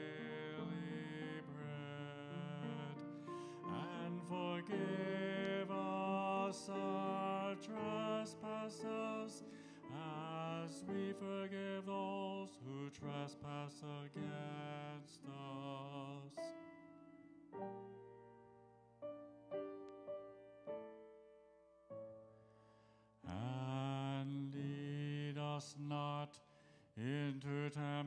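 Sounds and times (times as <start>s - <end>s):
man singing: 0.0s - 16.6s, 23.3s - 28.0s
grand piano: 0.0s - 26.2s.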